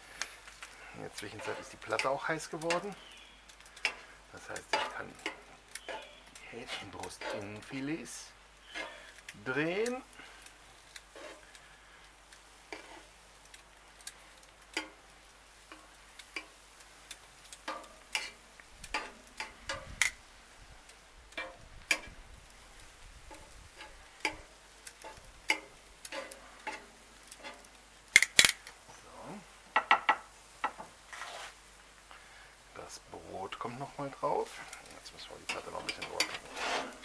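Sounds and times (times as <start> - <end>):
metal tongs clicking on a pan: 0.2 - 20.2, 20.8 - 22.2, 23.2 - 28.8, 34.7 - 36.4.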